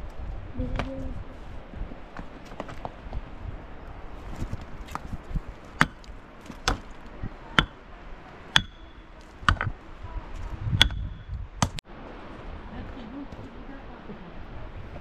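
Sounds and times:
tool striking blows: 0:07.6 - 0:07.8, 0:08.5 - 0:09.8, 0:10.8 - 0:11.8.

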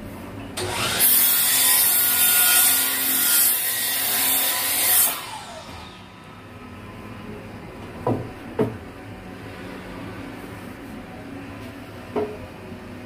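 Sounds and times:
miter saw cutting wood: 0:00.6 - 0:06.1.

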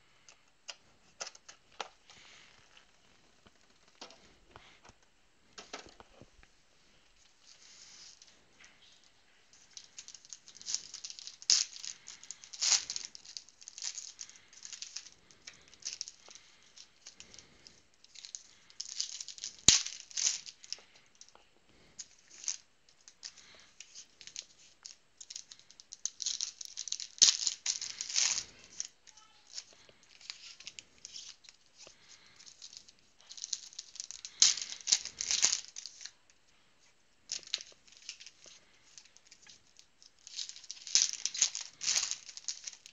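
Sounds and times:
foil crinkling: 0:09.6 - 0:36.2, 0:37.3 - 0:42.9.

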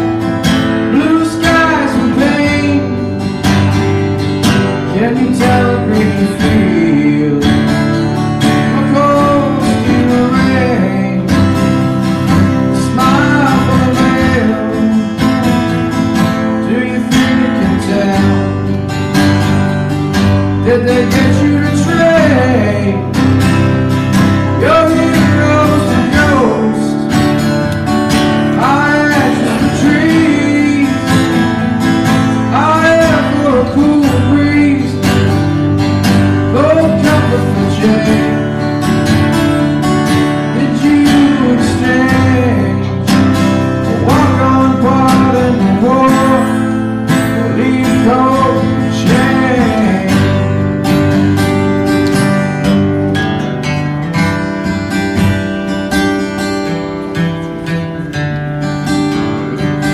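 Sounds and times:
acoustic guitar: 0:00.0 - 0:59.9
man singing: 0:00.7 - 0:03.8, 0:04.5 - 0:19.0, 0:20.2 - 0:27.6, 0:28.3 - 0:39.1, 0:39.8 - 0:51.0.

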